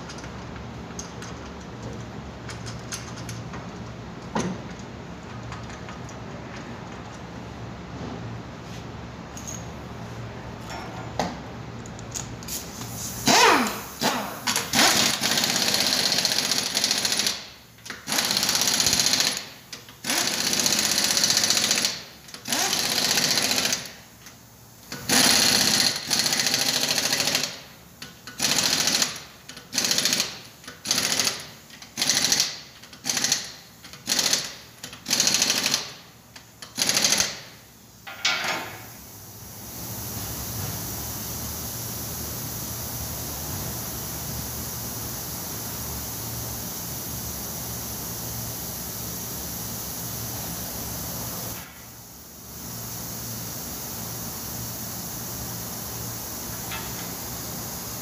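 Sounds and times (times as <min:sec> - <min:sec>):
pneumatic impact wrench hammering: 0:12.1 - 0:39.0, 0:51.5 - 0:52.1, 0:55.8 - 0:57.5.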